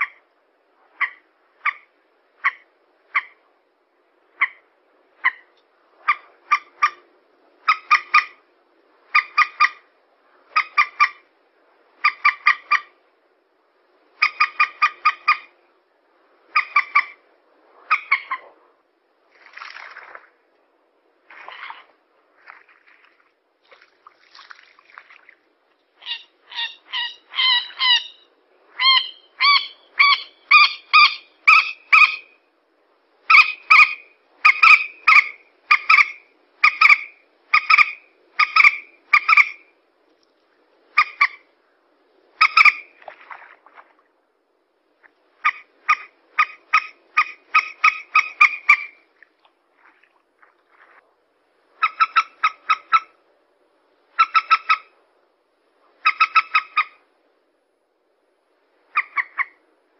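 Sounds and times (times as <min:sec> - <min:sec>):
moorhen calling: 0:00.9 - 0:03.4, 0:04.3 - 0:07.0, 0:07.6 - 0:08.4, 0:09.1 - 0:09.9, 0:10.5 - 0:11.3, 0:12.0 - 0:13.0, 0:14.2 - 0:15.6, 0:16.5 - 0:17.2, 0:17.9 - 0:18.5, 0:26.0 - 0:32.4, 0:33.2 - 0:39.7, 0:40.9 - 0:41.5, 0:42.4 - 0:43.0, 0:45.4 - 0:49.1, 0:51.8 - 0:53.2, 0:54.1 - 0:55.0, 0:55.9 - 0:57.0, 0:58.9 - 0:59.6.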